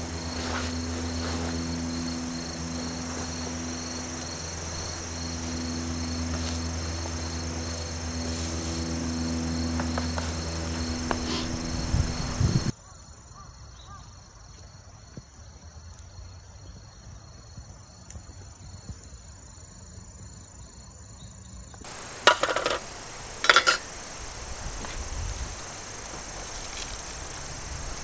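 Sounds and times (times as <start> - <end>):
crickets chirping: 0.0 - 28.0.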